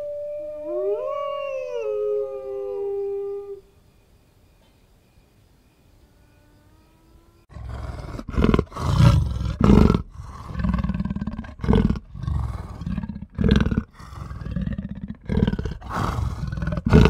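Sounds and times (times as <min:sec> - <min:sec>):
big cat growling: 0:07.5 - 0:17.0.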